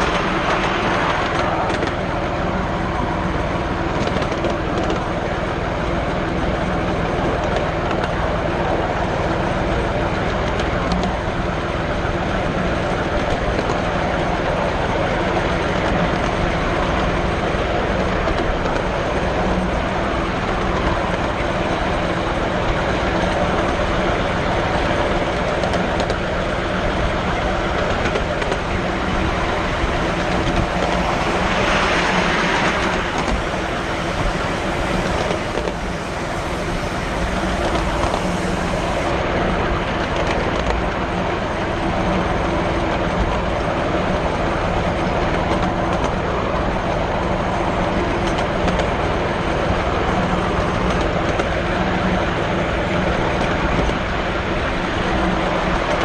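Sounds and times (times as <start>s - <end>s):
bright rush of noise: 0.0s - 3.9s, 28.6s - 39.3s
constant hum: 0.0s - 56.0s
train wheels rumbling on rails: 0.0s - 56.0s.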